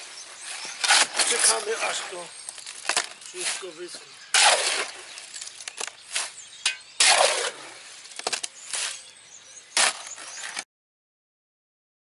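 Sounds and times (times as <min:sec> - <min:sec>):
shovel scraping wet concrete: 0:00.4 - 0:09.1, 0:09.7 - 0:10.6.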